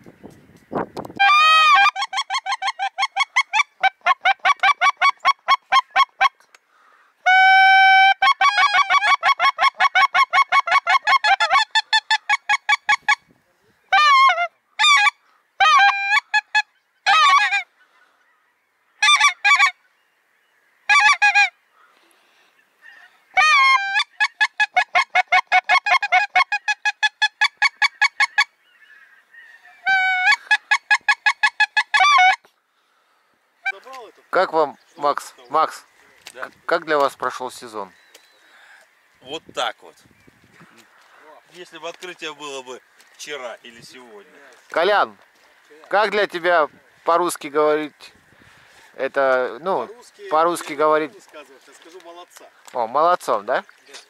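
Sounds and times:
goose honking: 1.2 - 6.5, 7.2 - 13.2, 13.9 - 17.7, 19.0 - 19.8, 20.7 - 21.6, 22.9 - 32.5, 33.6 - 34.7.

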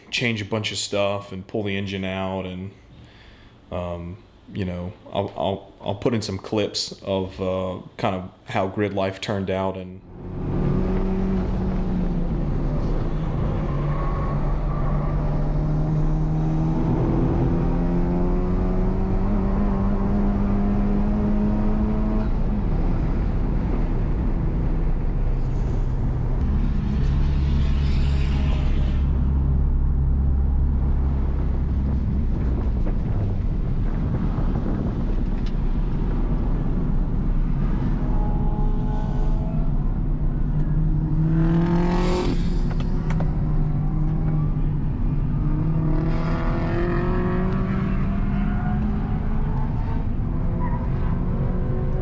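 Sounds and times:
car engine revving under throttle: 14.6 - 25.7, 40.7 - 49.6.

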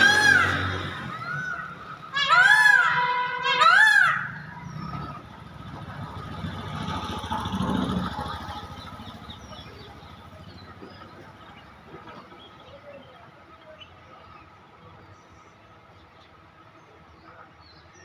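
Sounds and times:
peacock call: 0.0 - 5.2
motor vehicle passing: 0.0 - 13.1.

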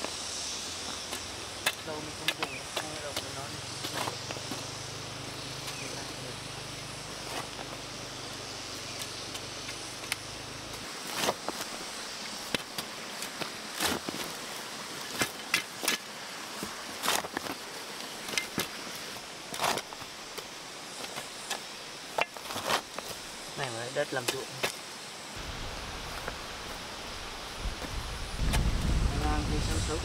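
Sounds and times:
blades chopping into soil: 11.1 - 11.7, 12.4 - 14.4.

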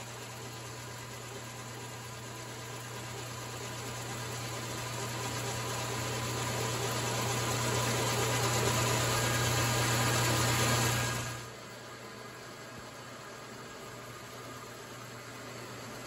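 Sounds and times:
metal lathe running: 2.8 - 11.4.

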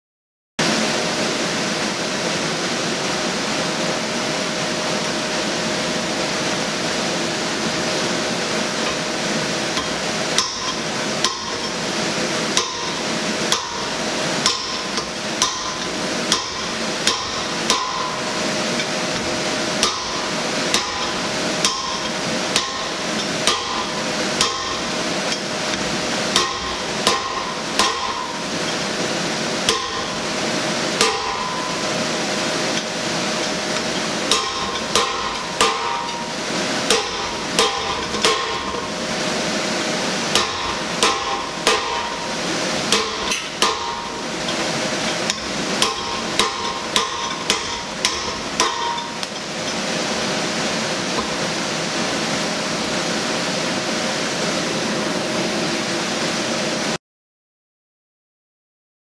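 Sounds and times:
steady background hiss: 0.6 - 57.0
hammer striking metal die: 14.5 - 18.2, 19.8 - 25.4, 26.4 - 28.4, 29.7 - 30.1, 31.0 - 31.8, 34.3 - 36.3, 36.9 - 38.9, 40.3 - 42.2, 42.9 - 49.4.

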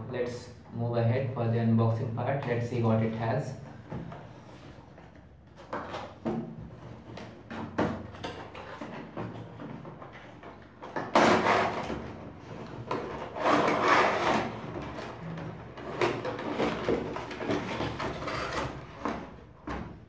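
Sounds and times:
plastic tray scraping cardboard: 10.1 - 19.4.

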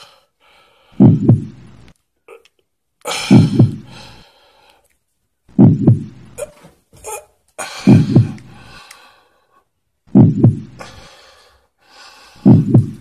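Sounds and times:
slow heartbeat thumps: 1.0 - 1.9, 3.2 - 4.1, 5.5 - 6.4, 7.9 - 8.5, 10.1 - 10.8, 12.4 - 13.0
man gasping for breath: 3.1 - 4.9, 7.0 - 9.7, 10.7 - 13.0.

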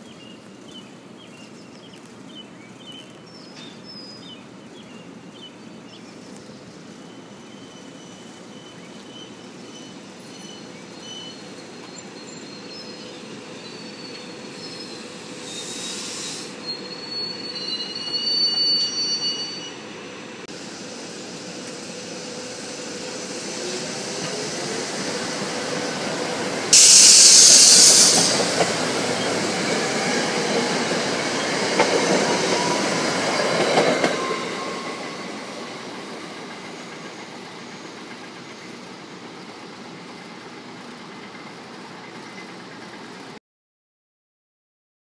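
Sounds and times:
electric train passing: 4.4 - 43.4
loud hiss: 7.2 - 43.3
train wheels clicking: 20.8 - 43.4.

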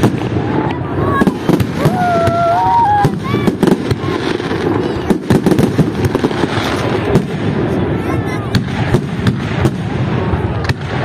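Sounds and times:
fireworks bangs and crackling: 0.0 - 11.0
people's voices: 0.2 - 9.0.

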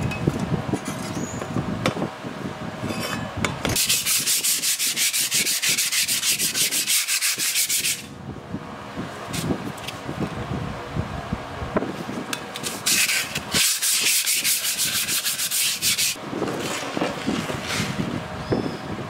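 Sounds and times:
sandpaper scrubbing steel blade: 3.8 - 8.1, 12.6 - 16.2.

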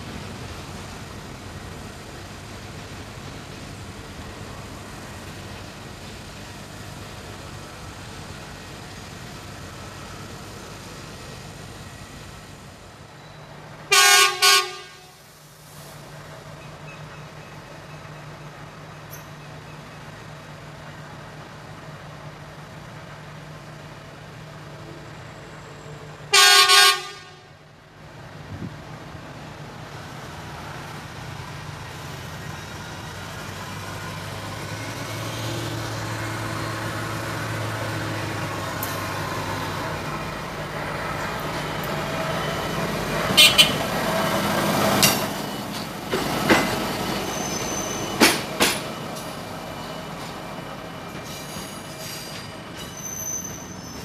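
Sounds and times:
train horn blasts: 13.9 - 15.2, 26.3 - 27.5, 43.4 - 43.8
diesel engine hum: 27.4 - 45.1.

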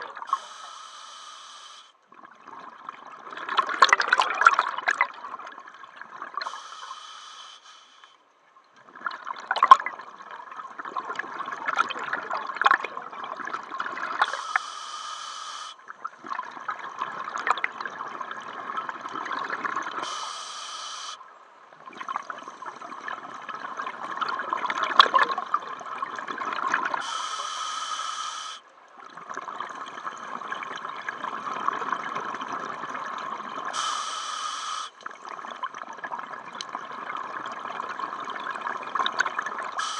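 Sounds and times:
regulator inhalation hiss: 0.3 - 1.9, 6.4 - 8.1, 14.2 - 15.8, 20.0 - 21.2, 27.0 - 28.6, 33.7 - 35.0.

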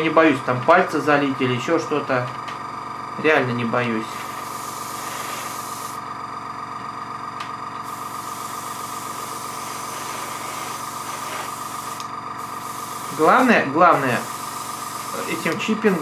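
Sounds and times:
compressor humming: 0.0 - 16.0
airbrush spraying hiss: 4.1 - 6.1, 7.8 - 16.0.

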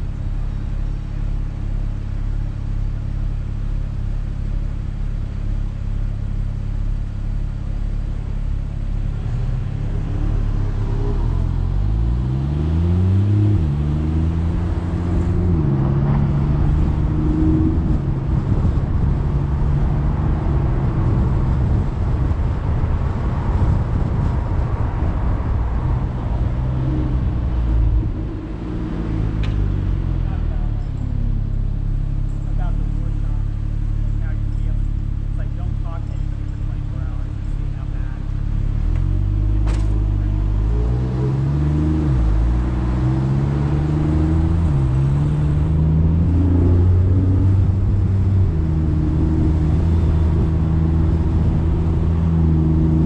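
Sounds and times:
car engine accelerating: 0.0 - 53.0
tyre and wind noise: 10.6 - 30.2.

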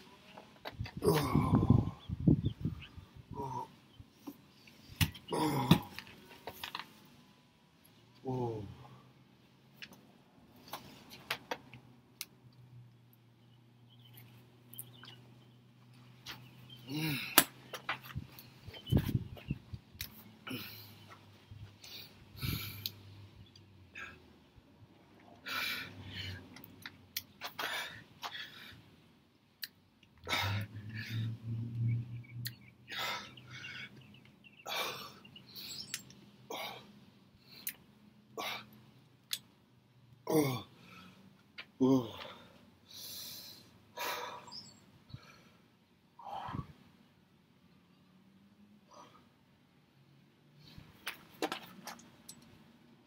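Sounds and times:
man breathing hard: 21.7 - 23.1, 25.4 - 26.5, 27.5 - 28.9, 30.2 - 31.4, 32.9 - 34.0, 42.0 - 46.8.

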